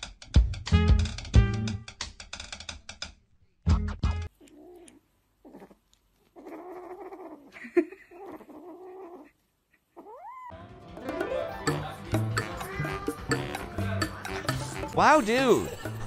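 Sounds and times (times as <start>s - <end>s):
kitten growling: 4.4s - 10.5s, 11.9s - 13.7s
kitten meowing: 12.4s - 13.0s.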